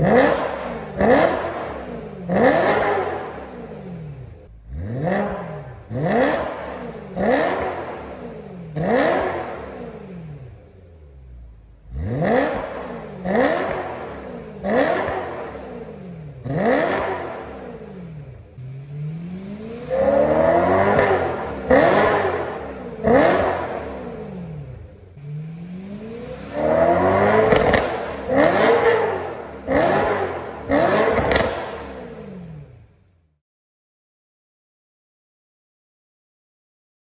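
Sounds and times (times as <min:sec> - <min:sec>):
car engine revving: 0:00.0 - 0:33.4.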